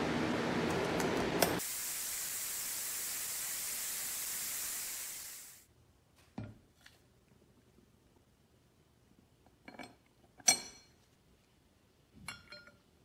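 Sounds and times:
steady high hiss: 1.6 - 5.7.

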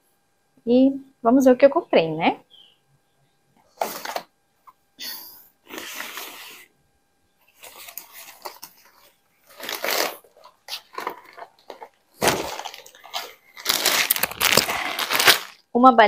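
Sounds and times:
plastic bags rustling: 3.7 - 4.3, 7.5 - 15.7.

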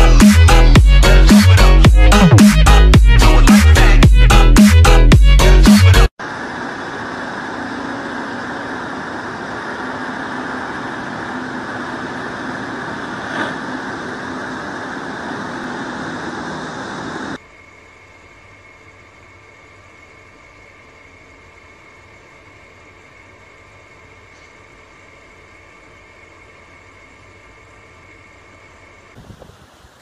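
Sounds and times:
distant excavator engine running: 6.2 - 17.4.

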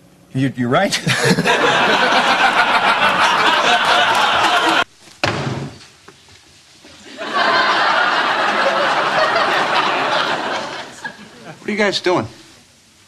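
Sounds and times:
studio audience laughter: 1.0 - 4.9, 7.0 - 11.6
sudden thump: 5.2 - 5.9.

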